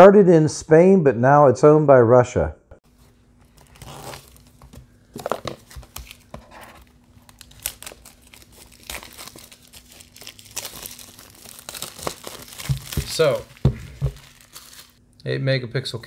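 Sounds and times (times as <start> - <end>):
plastic shrink-wrap crinkling: 3.4 - 15.0.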